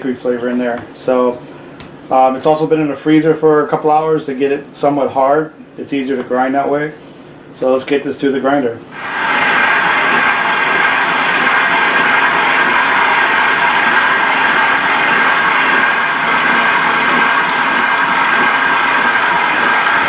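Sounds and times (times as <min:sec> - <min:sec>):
stand mixer motor whine: 0:09.0 - 0:20.0.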